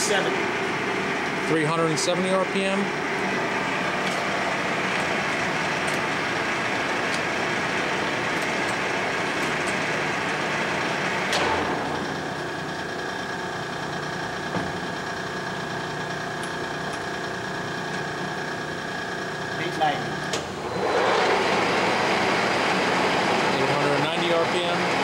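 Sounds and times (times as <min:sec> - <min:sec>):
quiet steady machine hum: 0:00.0 - 0:20.7
lathe spindle gear noise: 0:00.0 - 0:25.0
lever clunk: 0:11.3 - 0:12.1.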